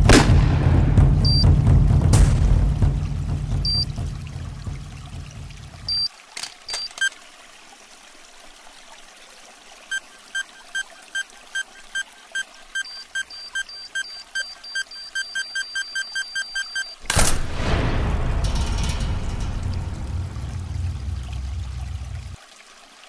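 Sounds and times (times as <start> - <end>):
loud rushing boom: 0.0 - 4.1, 17.1 - 22.4
electronic countdown beeping: 1.2 - 1.6, 3.6 - 4.0, 5.9 - 6.1, 9.9 - 17.0.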